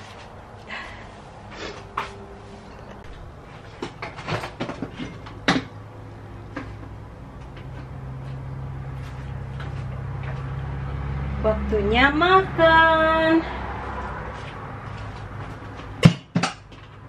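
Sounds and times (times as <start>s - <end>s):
low steady hum: 0.0s - 14.2s.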